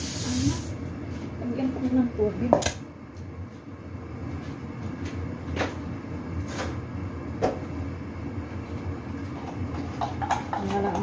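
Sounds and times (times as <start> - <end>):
steady low hum: 0.0 - 11.0
kitchen clicks and knocks: 9.7 - 11.0.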